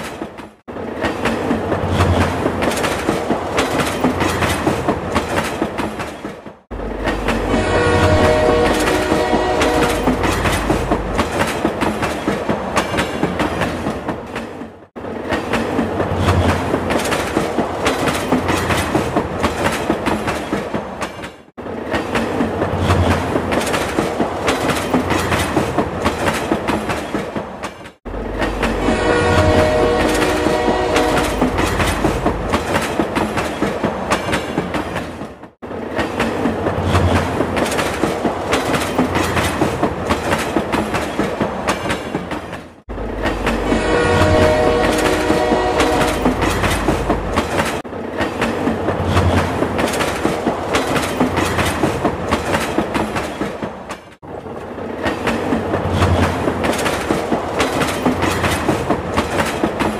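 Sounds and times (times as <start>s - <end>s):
toy train whistle: 7.5s - 10.0s.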